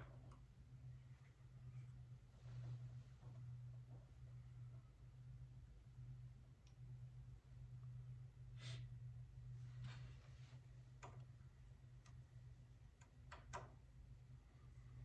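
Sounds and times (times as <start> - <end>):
steady low hum: 0.0 - 15.0
faint clicks and taps: 10.9 - 12.2, 12.9 - 13.8.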